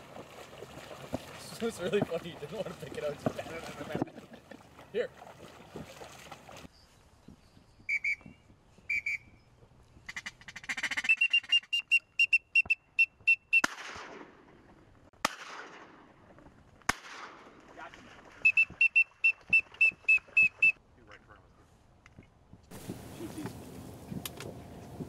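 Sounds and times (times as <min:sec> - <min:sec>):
whistled duck calls: 0:07.9 - 0:09.4, 0:10.0 - 0:13.7, 0:18.4 - 0:20.8
shotgun shots with echo: 0:13.6 - 0:14.5, 0:15.2 - 0:16.1, 0:16.9 - 0:17.5.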